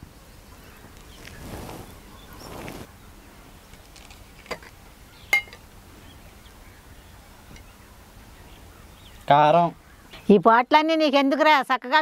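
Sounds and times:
faint outdoor background: 0:00.0 - 0:12.0
earthenware pots clinking: 0:05.3 - 0:05.6.

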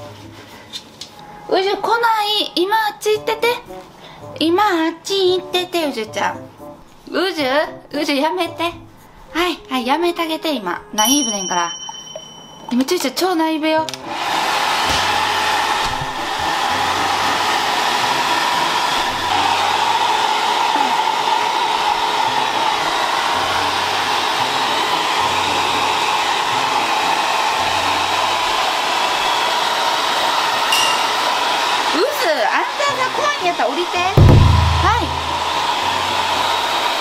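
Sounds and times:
hair dryer running: 0:13.9 - 0:37.0.

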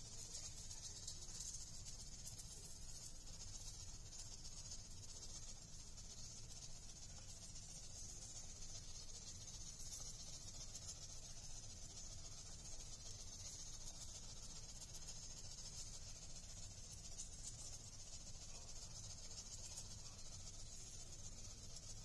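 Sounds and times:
high-pitched hiss: 0:00.0 - 0:22.0.

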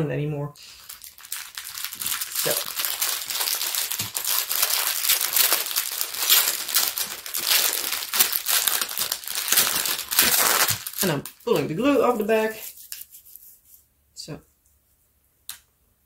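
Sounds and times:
plastic bags crinkling: 0:00.6 - 0:13.0.

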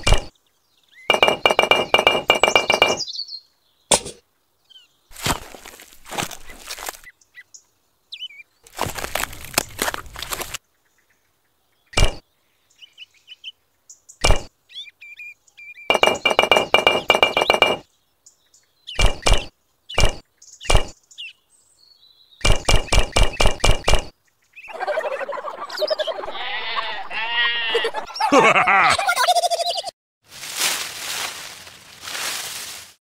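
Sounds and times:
rapid clicks: 0:01.1 - 0:03.0.

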